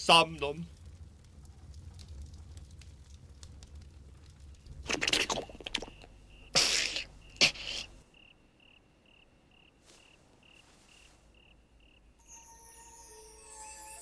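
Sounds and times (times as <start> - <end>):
low rumble: 0.0 - 6.5
log fire crackling: 0.0 - 8.2
cricket chirping: 5.1 - 14.0.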